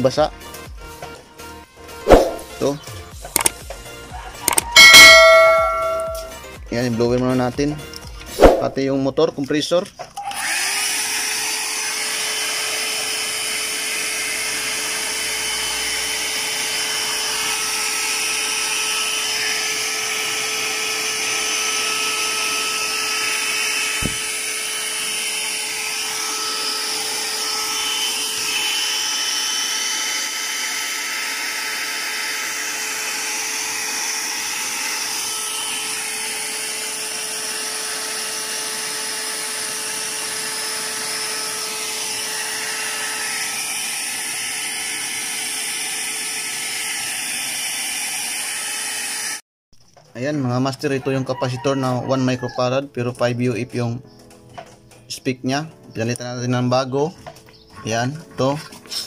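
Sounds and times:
electric blower motor humming: 10.2s - 49.4s
short knock: 24.0s - 24.3s.

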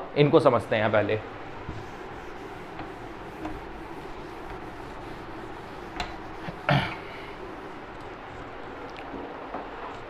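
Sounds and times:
duster scrubbing whiteboard: 0.8s - 8.6s.

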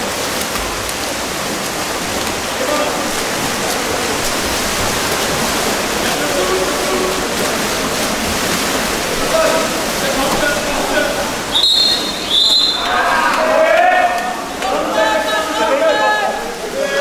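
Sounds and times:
water splashing and churning: 0.0s - 17.0s
faint shouting voices: 9.2s - 17.0s.

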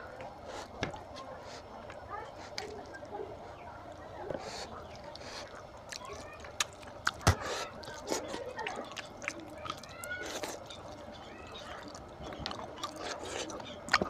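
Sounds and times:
chewing and lip-smacking: 0.0s - 3.3s, 3.9s - 14.0s
fingers squelching in curry and rice: 4.4s - 14.0s.

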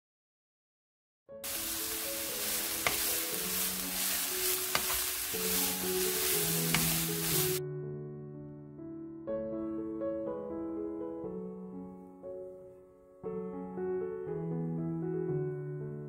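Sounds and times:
soft piano music: 1.3s - 16.0s
sizzling in oil in a frying pan: 1.4s - 7.6s.

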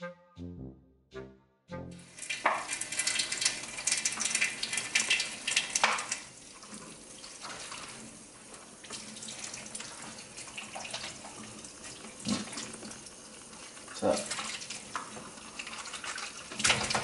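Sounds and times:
tap running into a sink: 2.2s - 8.0s, 16.5s - 17.0s.

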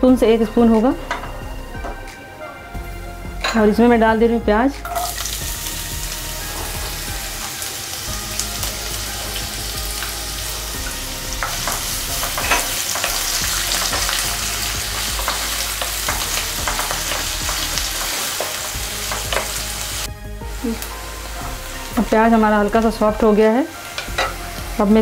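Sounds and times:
onions sizzling in hot oil: 4.8s - 25.0s.

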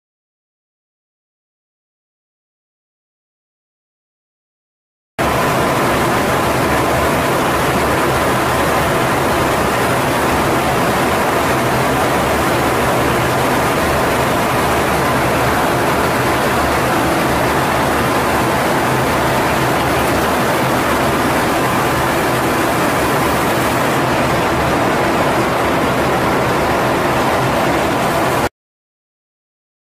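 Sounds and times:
aircraft cockpit engine rush: 5.2s - 28.5s.

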